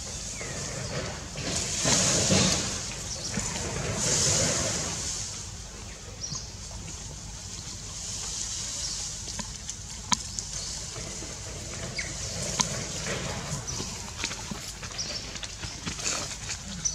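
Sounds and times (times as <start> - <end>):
bamboo leaves rustling: 0.0 - 5.8, 6.5 - 16.9
steady high hiss: 0.0 - 13.1.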